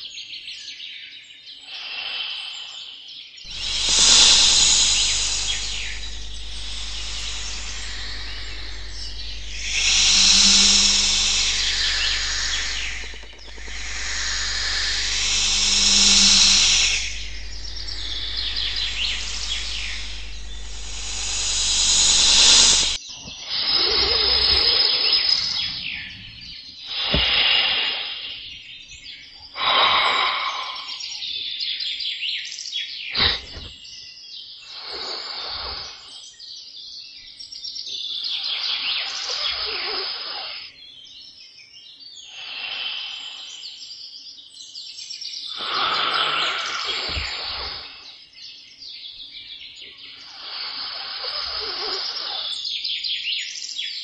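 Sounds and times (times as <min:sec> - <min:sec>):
birds chirping: 0:00.0 - 0:54.0
insects calling: 0:01.6 - 0:31.8, 0:34.6 - 0:36.3, 0:38.0 - 0:40.9, 0:42.2 - 0:44.2, 0:45.4 - 0:48.3, 0:49.2 - 0:53.2
noisy bursts: 0:03.5 - 0:23.0.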